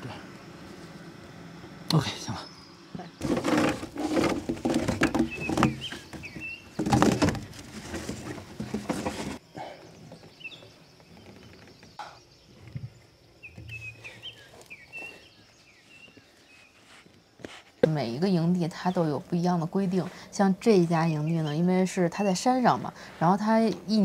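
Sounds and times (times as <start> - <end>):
birds chirping: 0.0 - 24.0
hoses rustling and scraping: 3.0 - 17.8
hose rubbing against metal: 3.2 - 9.4.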